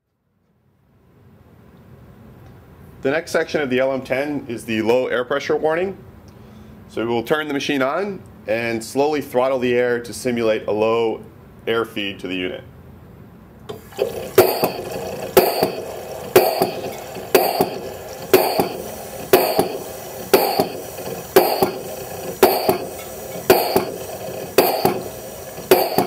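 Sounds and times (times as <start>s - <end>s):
pump plunger knocking: 13.7s - 26.0s.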